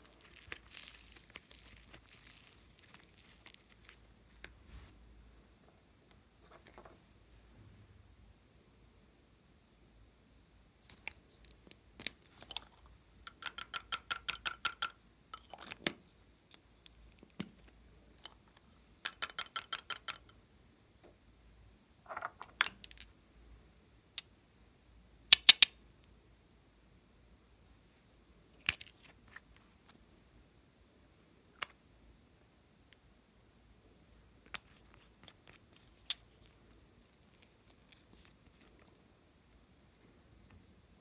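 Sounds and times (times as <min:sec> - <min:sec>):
plastic caps clicking: 0:25.3 - 0:25.7.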